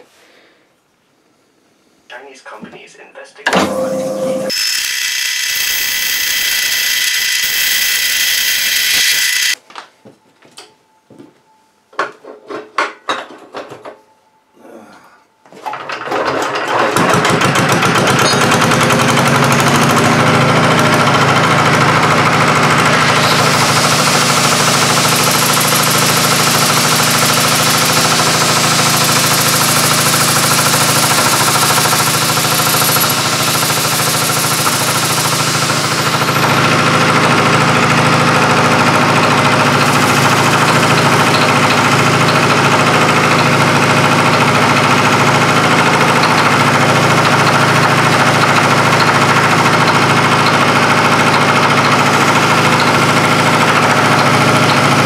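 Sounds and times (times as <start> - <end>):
angle grinder grinding: 3.8 - 9.6, 17.8 - 55.0
small engine running: 3.9 - 9.6, 16.7 - 55.0.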